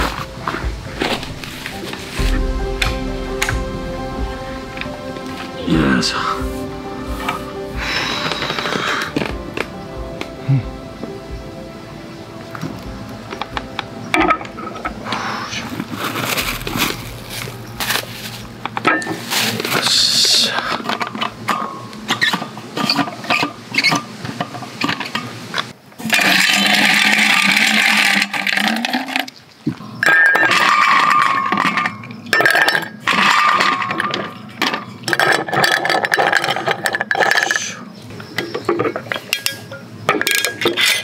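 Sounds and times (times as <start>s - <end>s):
steady rush of noise: 0.0s - 26.0s.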